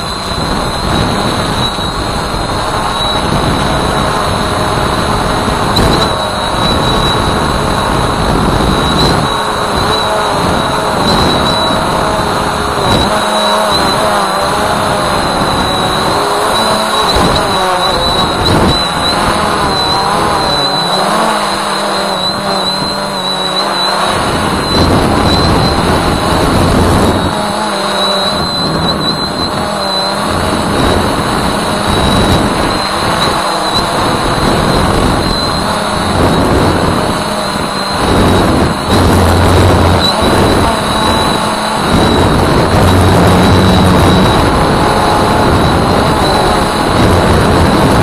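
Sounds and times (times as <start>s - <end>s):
drone motors buzzing whine: 0.0s - 48.0s
rushing noise: 0.0s - 48.0s
thin high steady tone: 0.0s - 48.0s.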